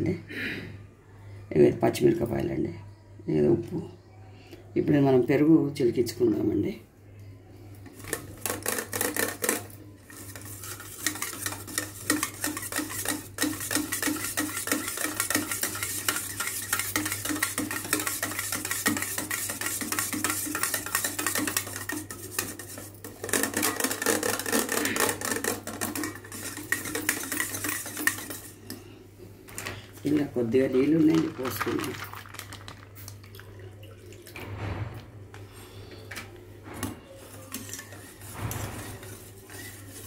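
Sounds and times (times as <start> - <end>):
whisk scraping metal bowl: 7.9 - 28.8, 37.2 - 40.0.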